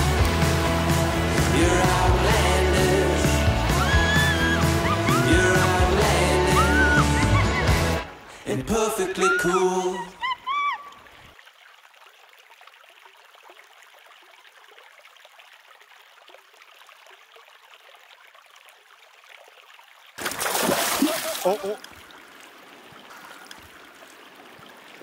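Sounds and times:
music: 0:00.0 - 0:08.9
river water trickling over rocks: 0:10.2 - 0:25.0.

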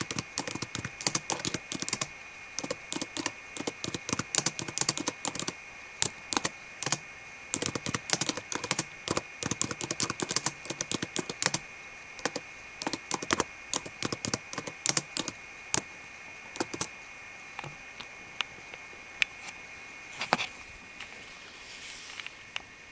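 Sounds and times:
fingernails tapping laptop keys: 0:00.0 - 0:07.0, 0:07.6 - 0:11.6, 0:12.2 - 0:15.4, 0:16.6 - 0:16.9
brief rustle: 0:20.2 - 0:22.4.

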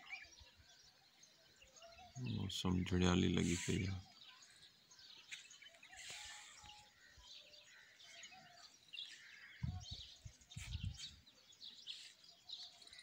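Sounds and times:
small birds chirping: 0:00.0 - 0:13.0
low dull thumps: 0:09.6 - 0:11.0.

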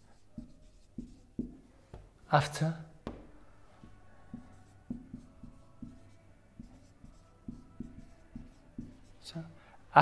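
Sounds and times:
marker writing on a whiteboard: 0:00.0 - 0:10.0.

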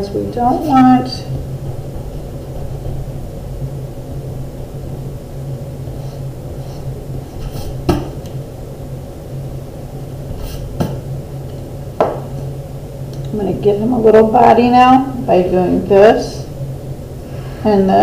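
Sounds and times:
steady low hum: 0:00.0 - 0:18.0
eraser rubbing on paper: 0:05.9 - 0:07.9
sharp knocks: 0:07.5 - 0:08.2.

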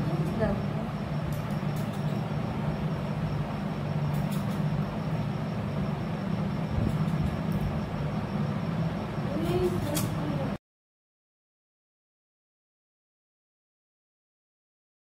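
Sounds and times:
constant rumble: 0:00.0 - 0:10.6
low mechanical hum: 0:00.0 - 0:10.6.

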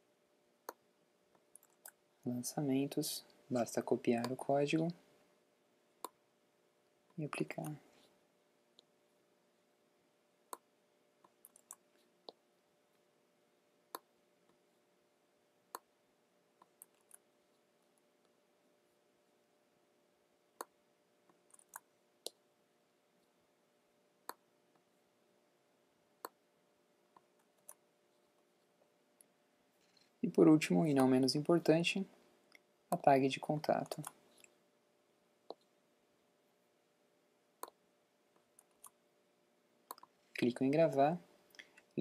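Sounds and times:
faint steady hum: 0:00.0 - 0:42.0
computer mouse and keyboard clicks: 0:11.3 - 0:12.4, 0:21.4 - 0:22.4, 0:33.8 - 0:34.5.

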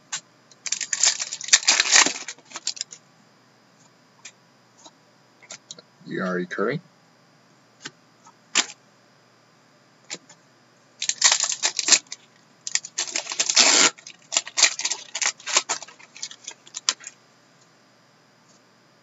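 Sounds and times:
wrappers crinkling: 0:00.6 - 0:03.0, 0:11.0 - 0:17.2.

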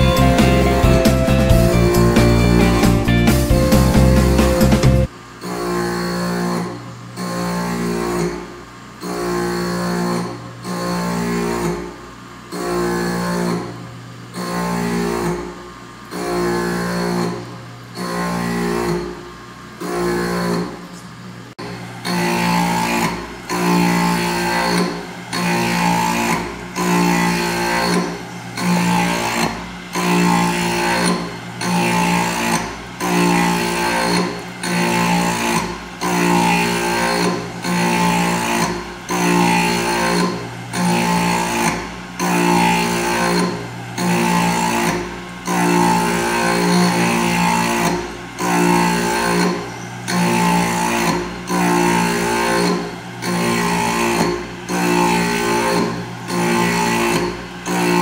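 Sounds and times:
plucked guitar-like music: 0:00.0 - 0:05.1.

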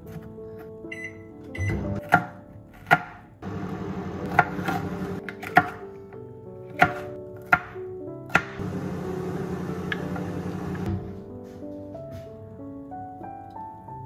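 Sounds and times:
knife chopping on cutting board: 0:02.0 - 0:03.2, 0:04.2 - 0:05.8, 0:06.7 - 0:08.6.

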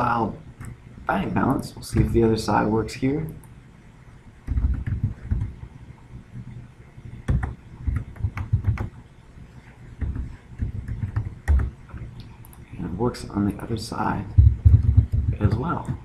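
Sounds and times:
computer mouse clicking: 0:04.5 - 0:05.7
dull low thumps: 0:14.3 - 0:16.0.

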